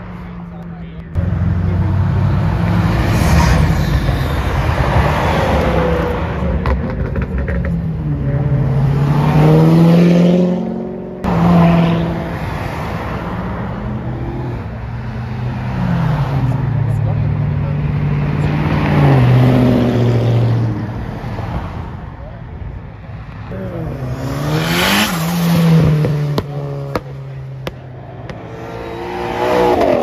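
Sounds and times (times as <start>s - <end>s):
cars accelerating hard: 0.0s - 22.2s, 23.1s - 30.0s
engine revving up: 23.5s - 30.0s.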